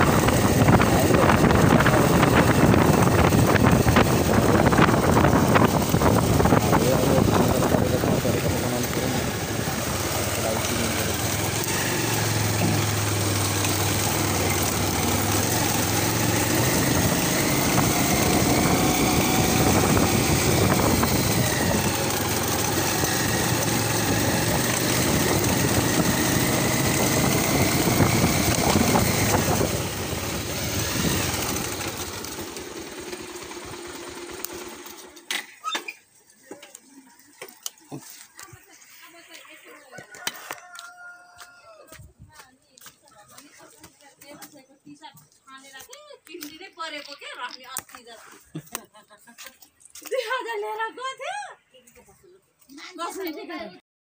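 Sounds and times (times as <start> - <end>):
wind and road noise: 0.0 - 35.4
motorbike engine: 0.0 - 41.2.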